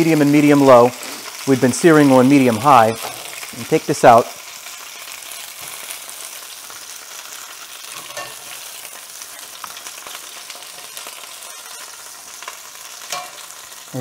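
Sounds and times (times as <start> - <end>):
chicken sizzling in hot oil: 0.0 - 14.0
metal tongs clicking: 13.1 - 13.4.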